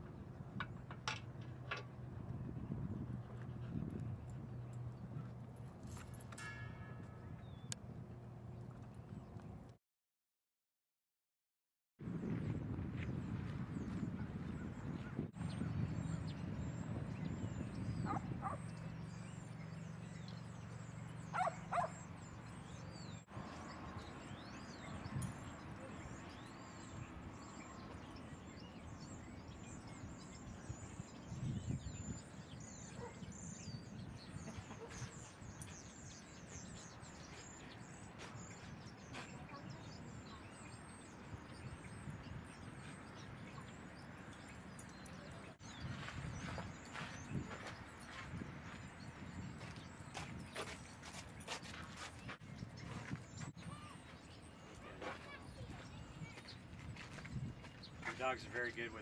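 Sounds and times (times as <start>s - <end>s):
dog barking: 18.0s - 18.6s, 21.3s - 22.0s, 32.9s - 33.3s.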